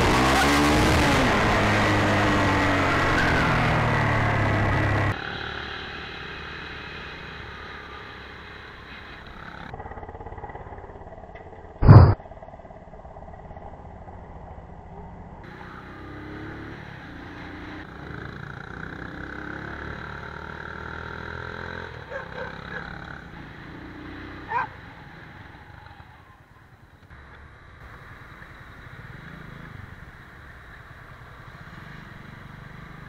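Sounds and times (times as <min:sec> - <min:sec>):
motorcycle engine running: 0:09.3 - 0:17.2
short loud burst: 0:11.8 - 0:12.2.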